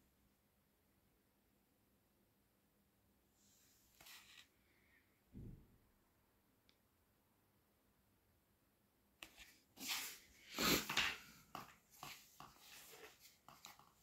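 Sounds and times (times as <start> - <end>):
rustling and scraping from handling: 3.6 - 4.6, 9.2 - 14.0.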